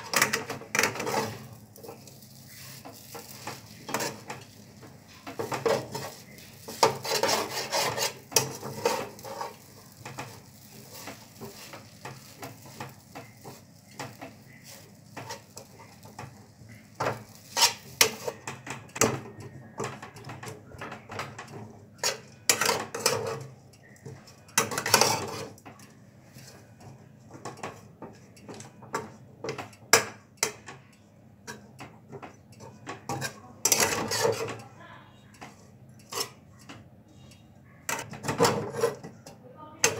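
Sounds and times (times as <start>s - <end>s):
metal spatula scraping a wok: 0.0s - 18.5s, 22.0s - 23.6s, 24.6s - 25.6s, 32.7s - 34.6s, 35.5s - 36.4s, 37.9s - 39.2s.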